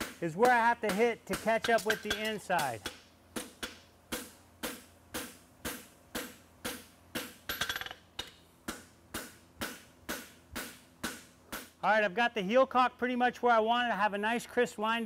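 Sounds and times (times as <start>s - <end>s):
hammer striking horseshoe on anvil: 0.0s - 11.8s
metallic ring: 7.3s - 8.1s.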